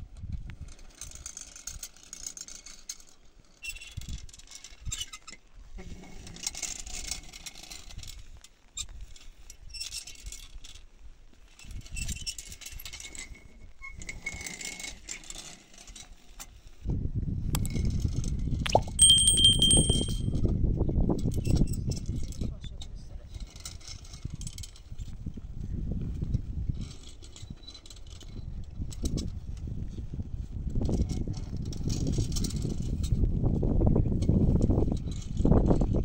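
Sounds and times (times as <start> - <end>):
stone roller scraping over earth: 0.5 - 10.8, 11.4 - 16.9.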